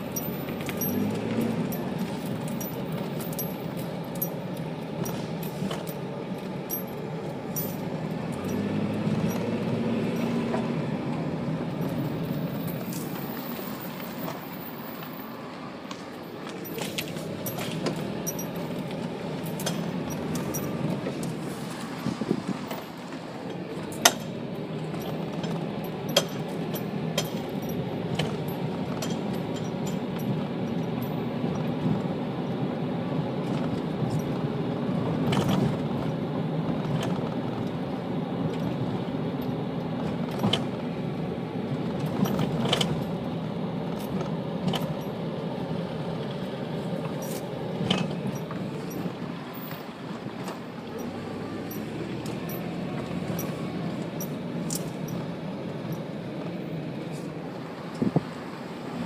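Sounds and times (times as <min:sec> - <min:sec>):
engine and tyres rumbling: 0:00.0 - 0:59.0
sharp clicks and rattles: 0:15.9 - 0:21.4, 0:50.4 - 0:56.6.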